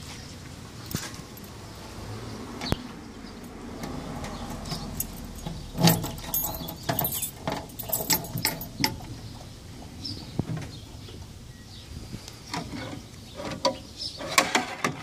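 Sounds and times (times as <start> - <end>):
metallic lock clicks and rattles: 4.2 - 9.1
keys jangling: 4.7 - 9.0.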